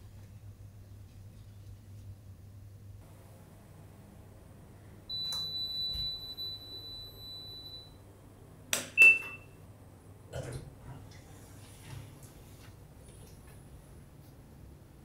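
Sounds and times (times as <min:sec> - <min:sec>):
long electronic beep: 0:05.1 - 0:08.0
short beep: 0:09.0 - 0:09.6.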